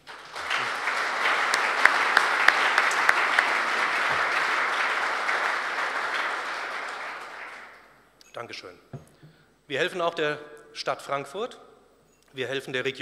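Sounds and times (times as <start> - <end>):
audience applauding: 0.0 - 7.9
single sharp claps: 0.4 - 7.8.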